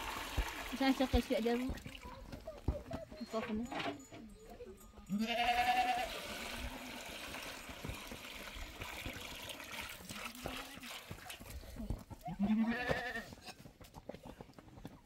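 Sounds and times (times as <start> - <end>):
water pouring into a basin: 0.0 - 2.0, 6.1 - 11.5
short bleat: 5.2 - 6.2, 12.4 - 13.6.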